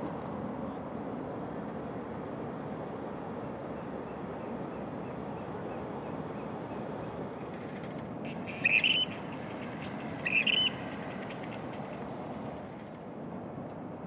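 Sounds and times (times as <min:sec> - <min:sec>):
steady background hum: 0:00.0 - 0:14.0
bird calling: 0:08.3 - 0:12.0.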